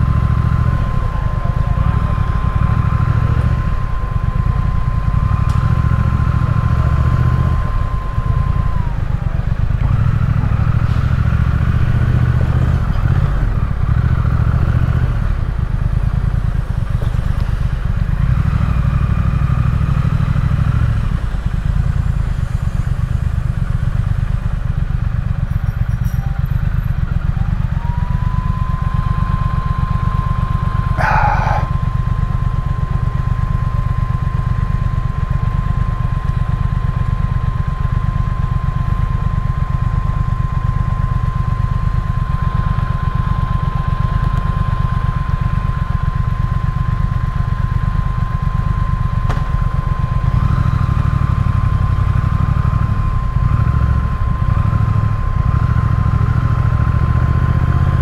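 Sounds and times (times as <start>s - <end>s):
high whine: 0.0s - 11.8s, 27.6s - 58.0s
motorcycle engine running: 0.0s - 58.0s.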